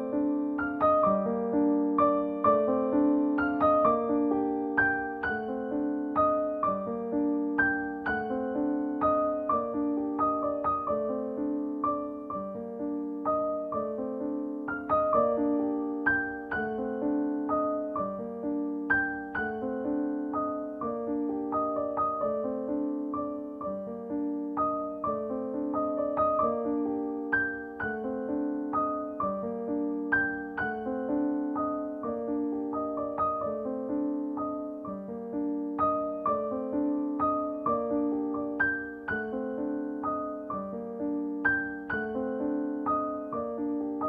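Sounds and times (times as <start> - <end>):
solo piano music: 0.0 - 44.0.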